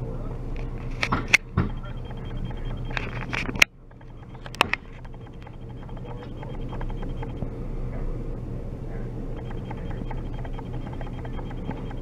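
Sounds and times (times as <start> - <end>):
clicks: 1.0 - 7.4, 9.4 - 12.0.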